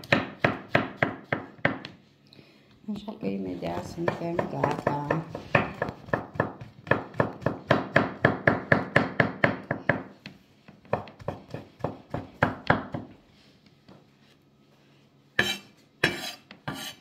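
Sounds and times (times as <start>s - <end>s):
knife chopping on wooden board: 0.0s - 2.0s, 3.7s - 10.2s, 10.8s - 13.2s.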